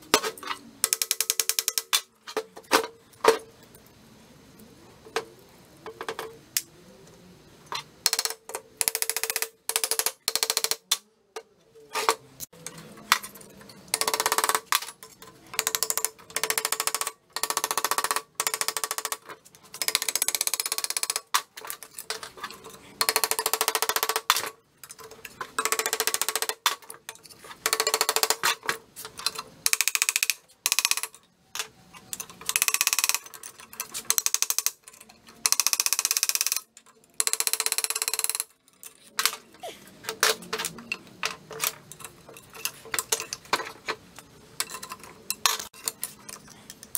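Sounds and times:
pneumatic air hammer rattling: 11.9s - 46.2s.

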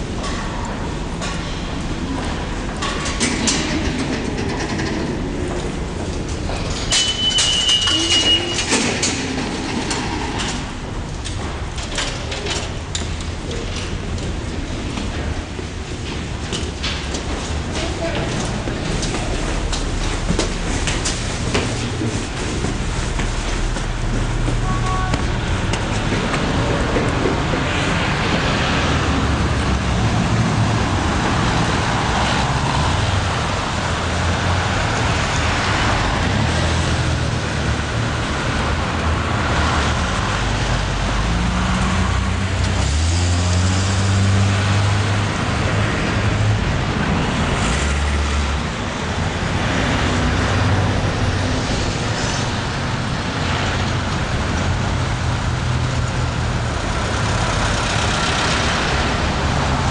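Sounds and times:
cars and trucks passing: 0.0s - 59.9s
heavy vehicle engine rumble: 0.0s - 59.9s.

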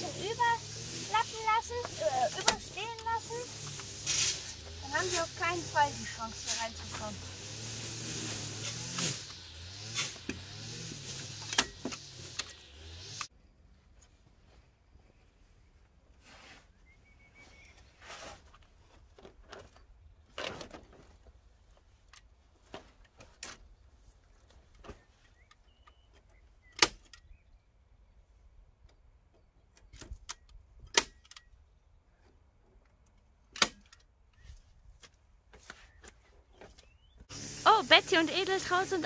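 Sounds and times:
wire rustling: 0.0s - 12.4s.

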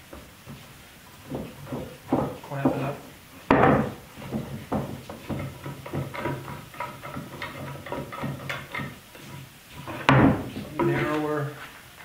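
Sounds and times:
sharp wooden knock: 3.5s - 8.9s.

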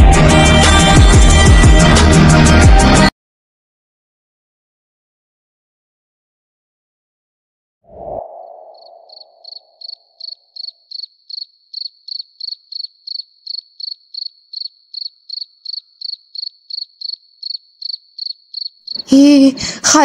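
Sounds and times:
low tone: 7.9s - 9.6s
cricket chirping: 8.4s - 19.2s.

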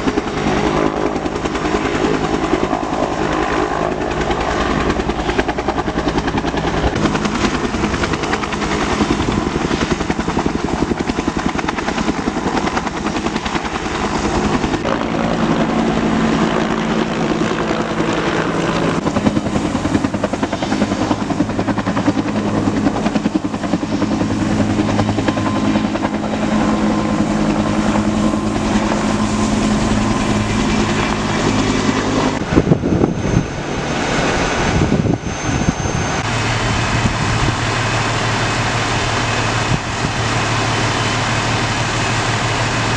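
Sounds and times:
helicopter turbine and rotor: 0.0s - 42.9s.

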